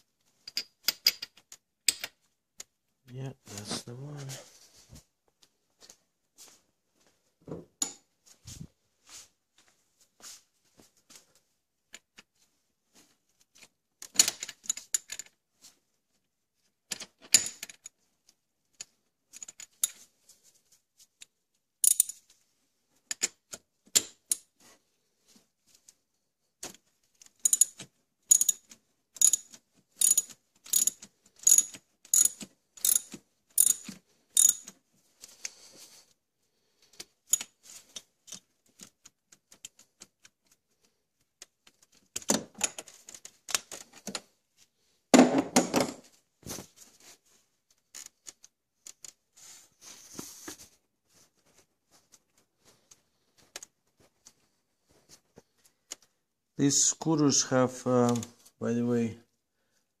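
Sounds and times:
socket ratchet clicking: 0:27.5 - 0:28.6, 0:30.0 - 0:34.6.

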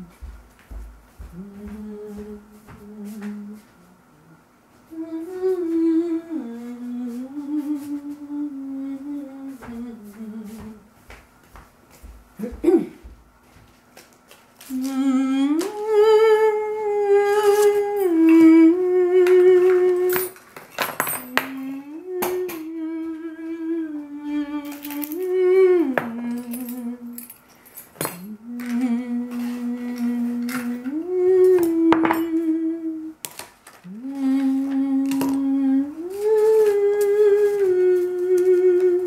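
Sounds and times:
person humming: 0:00.0 - 0:00.4, 0:01.2 - 0:10.9, 0:14.6 - 0:20.4, 0:21.1 - 0:27.3, 0:28.0 - 0:33.2, 0:33.8 - 0:39.0
household things clinking: 0:20.0 - 0:22.6, 0:26.0 - 0:30.8, 0:31.5 - 0:32.5.

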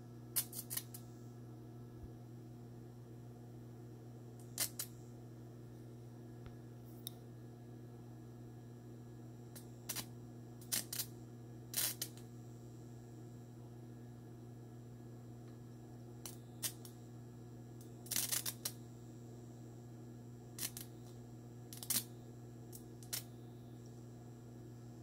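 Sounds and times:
electrical hum: 0:00.0 - 0:25.0
sharp electrical clicks and crackles: 0:00.3 - 0:01.0, 0:04.4 - 0:05.0, 0:09.5 - 0:12.3, 0:16.2 - 0:17.0, 0:17.8 - 0:18.8, 0:20.6 - 0:24.0.

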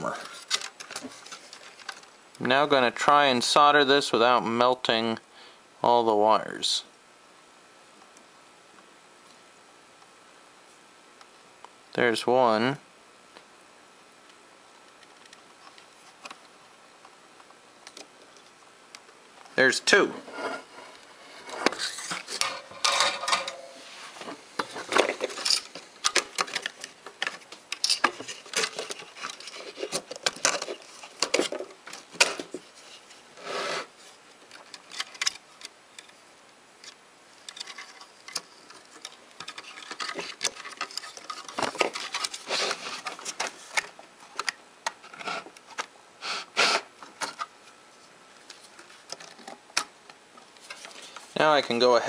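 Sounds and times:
metal scrape: 0:20.2 - 0:25.7
metal enclosure clinks and knocks: 0:22.4 - 0:23.8.

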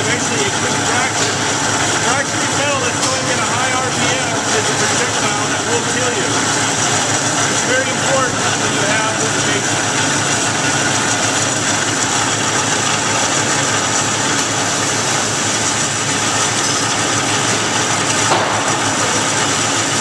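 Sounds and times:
bandsaw cutting metal: 0:00.0 - 0:20.0
brief knock: 0:18.3 - 0:18.7.

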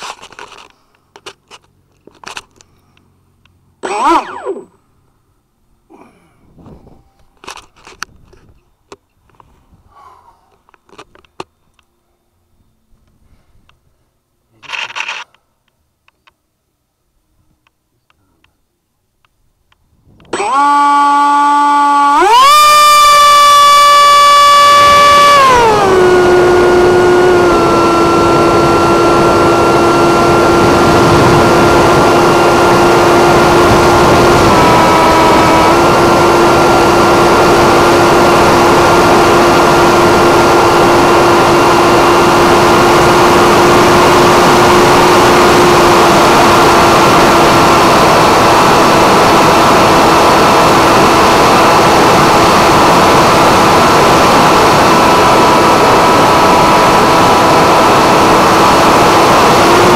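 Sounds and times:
electric motor high whine: 0:03.8 - 0:04.8, 0:20.2 - 0:59.9.

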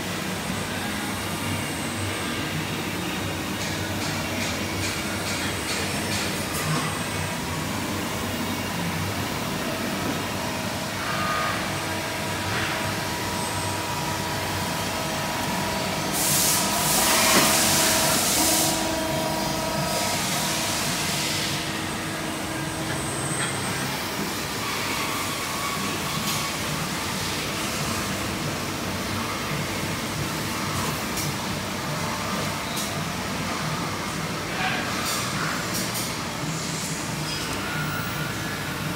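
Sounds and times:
workshop machinery hum: 0:00.0 - 0:38.9
loud hiss: 0:16.0 - 0:19.2.

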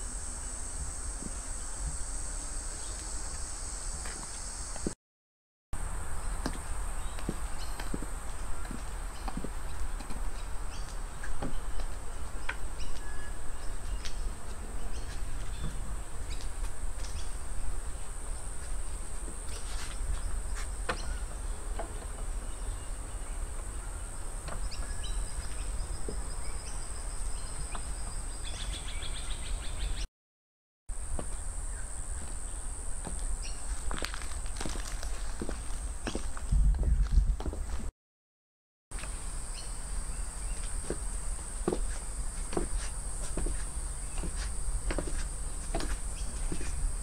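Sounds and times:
high-heel footsteps on steps: 0:06.4 - 0:10.2, 0:33.0 - 0:37.9, 0:40.6 - 0:46.8.

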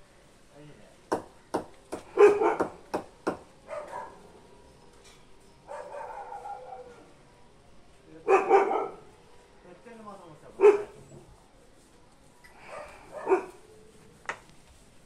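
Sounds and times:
sharp knocks: 0:01.1 - 0:03.4
dog barking: 0:02.1 - 0:02.8, 0:03.6 - 0:04.2, 0:05.6 - 0:07.1, 0:08.2 - 0:09.1, 0:10.5 - 0:11.1, 0:12.6 - 0:13.6.

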